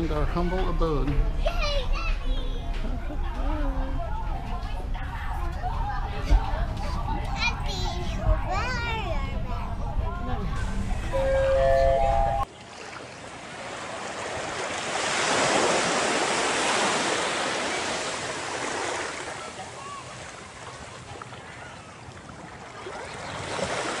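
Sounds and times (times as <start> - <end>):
ocean waves washing in: 12.6 - 24.0.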